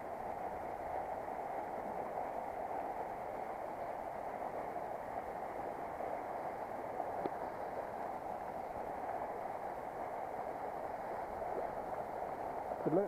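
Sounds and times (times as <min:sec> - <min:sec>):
water rushing over a weir: 0:00.0 - 0:13.0.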